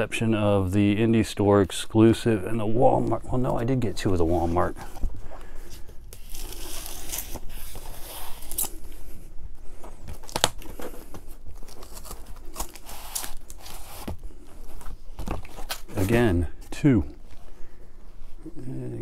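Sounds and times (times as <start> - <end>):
cardboard tearing and rustling: 6.1 - 8.8, 9.8 - 16.2.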